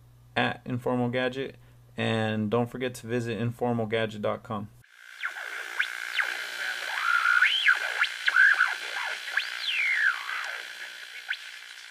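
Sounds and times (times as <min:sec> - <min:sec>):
steady high drone: 0:05.0 - 0:11.9
sliding synthesizer tones: 0:05.1 - 0:11.9.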